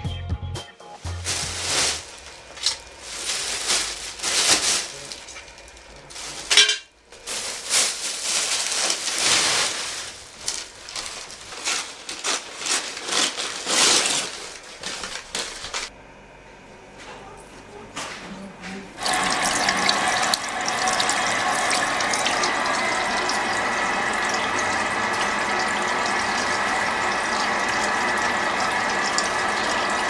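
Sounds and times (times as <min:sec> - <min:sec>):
plastic bags rustling: 0:01.0 - 0:15.9, 0:19.0 - 0:24.1.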